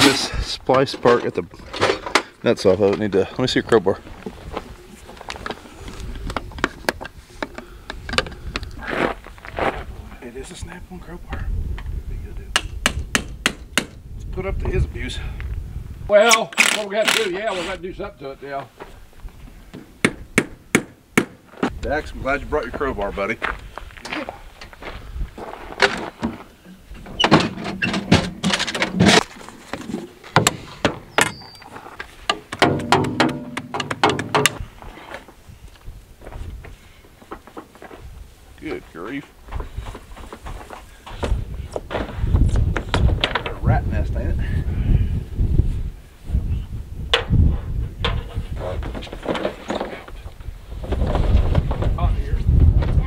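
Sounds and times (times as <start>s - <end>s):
wind rumble on microphone: 4.2s - 7.4s, 8.0s - 16.1s, 21.7s - 25.8s, 39.4s - 53.0s
sharp knocks: 12.5s - 14.0s, 19.8s - 21.4s, 32.5s - 34.6s
crowbar clanking on metal: 32.6s - 34.6s.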